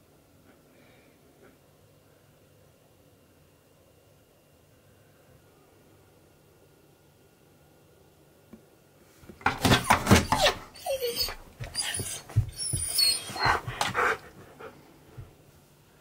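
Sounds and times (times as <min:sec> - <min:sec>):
dog whining: 0:09.6 - 0:14.3
dog huffing: 0:09.7 - 0:14.8.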